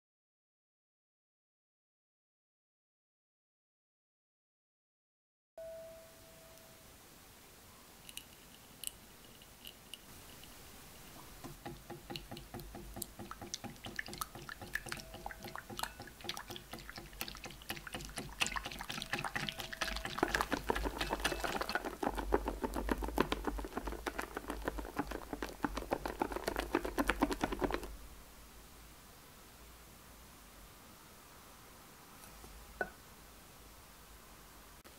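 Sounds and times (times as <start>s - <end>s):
cream sloshing: 11.4s - 27.9s
whisk clicking against glass bowl: 11.4s - 27.9s.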